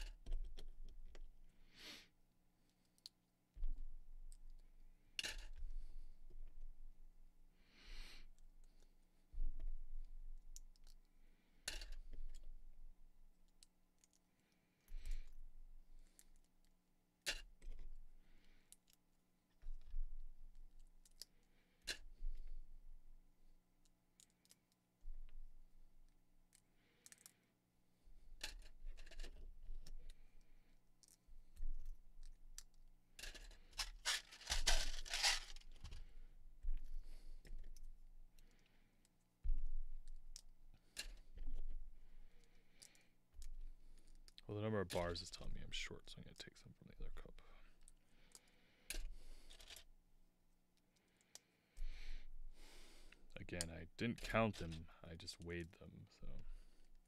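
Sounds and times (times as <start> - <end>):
clatter of loose plastic pieces: 28.4 - 30.0, 32.2 - 36.2, 48.9 - 49.9
rustling of plastic pieces: 31.8 - 36.2
plastic bricks clicking together: 32.6 - 36.0.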